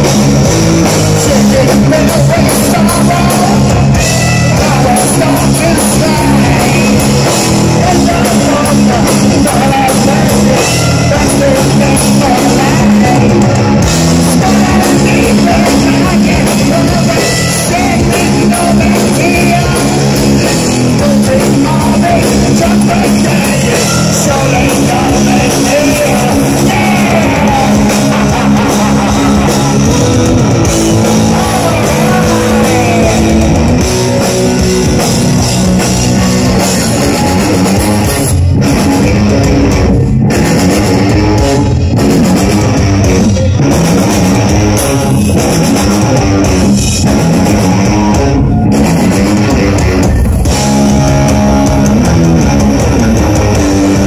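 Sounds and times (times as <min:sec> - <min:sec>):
electric guitar riffs: 0:00.0 - 0:54.0
rock drum kit: 0:00.0 - 0:54.0
person singing: 0:01.0 - 0:39.9.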